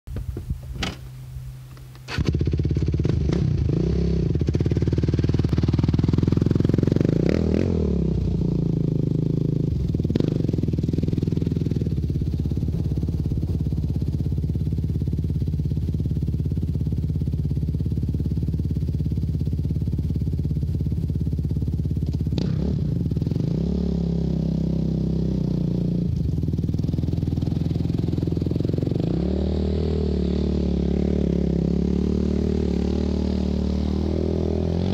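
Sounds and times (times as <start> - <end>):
quad engine revving: 2.1 - 20.3, 21.6 - 34.9.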